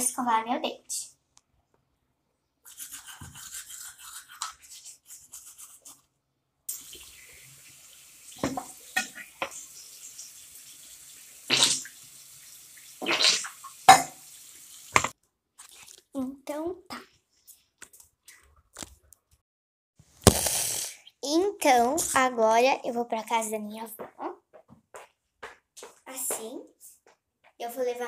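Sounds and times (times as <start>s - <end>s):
toothbrush scrubbing teeth: 2.7s - 6.0s, 13.0s - 14.0s, 15.6s - 16.1s
rinsing and spitting splashes: 6.7s - 16.1s
tap running into sink: 8.3s - 9.6s, 14.9s - 15.1s.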